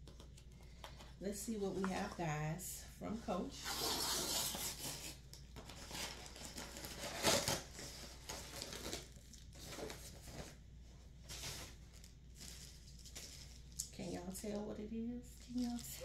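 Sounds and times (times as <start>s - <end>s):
paper mailer tearing: 3.6s - 9.2s
paper wrapping crinkling: 3.8s - 10.6s, 11.2s - 14.0s, 15.4s - 16.0s.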